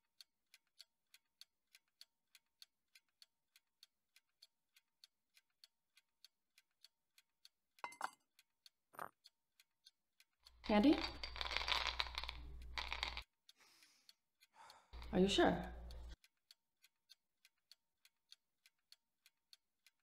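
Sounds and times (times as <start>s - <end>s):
wall clock ticking: 9.6s - 20.0s.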